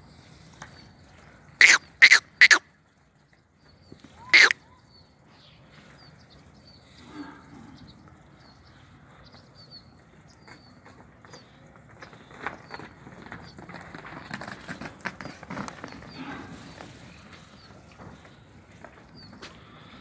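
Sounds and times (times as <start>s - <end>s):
buffalo calves snorting: 14.5s - 18.3s.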